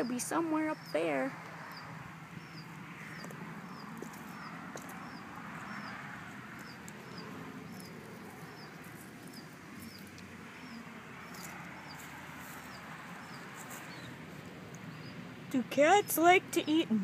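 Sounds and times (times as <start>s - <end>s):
bird chirping: 0.0s - 14.2s, 14.8s - 17.0s.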